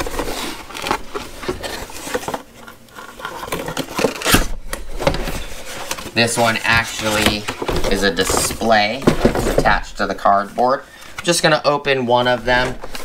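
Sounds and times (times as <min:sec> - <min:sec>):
cardboard box flaps rustling: 0:03.8 - 0:09.9.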